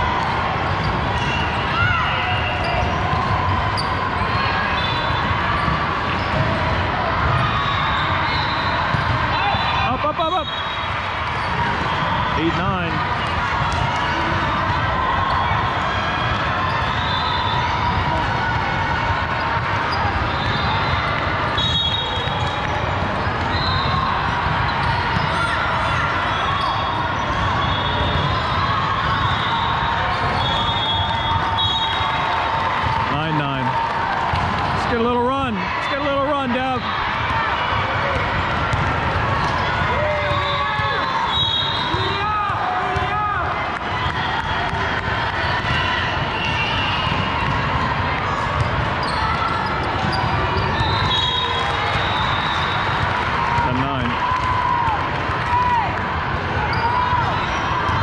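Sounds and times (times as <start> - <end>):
crowd chatter: 0.0 - 58.0
volleyballs bouncing on court: 0.1 - 58.0
sneaker squeaks: 0.6 - 6.6, 7.2 - 12.3, 19.4 - 32.4, 48.3 - 53.1, 56.6 - 58.0.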